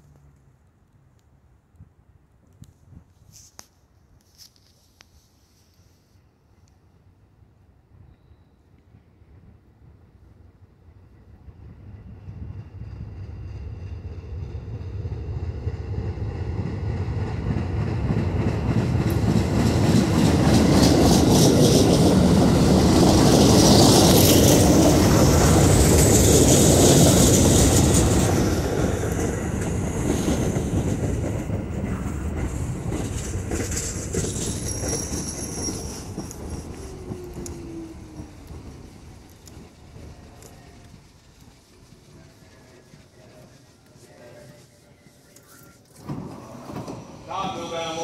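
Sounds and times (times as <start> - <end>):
train rumble and wheel clatter: 8.7 - 44.8, 45.9 - 48.0
brake squeal: 34.5 - 38.4.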